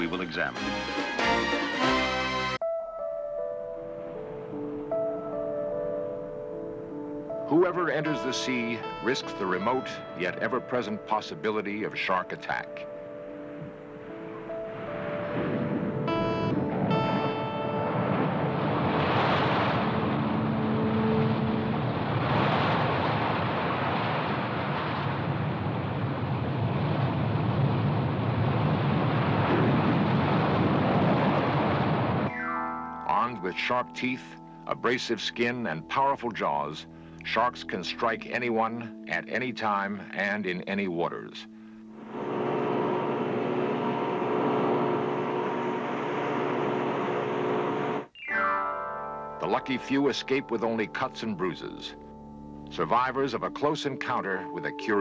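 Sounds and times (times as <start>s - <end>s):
ocean waves breaking: 8.0s - 32.3s, 42.0s - 48.1s
motorboat engine running: 42.0s - 48.1s.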